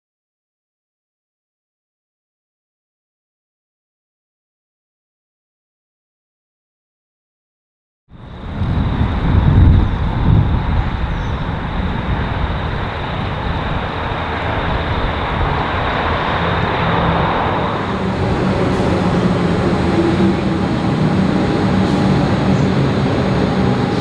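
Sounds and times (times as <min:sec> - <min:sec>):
train running with engine hum: 0:08.1 - 0:24.0.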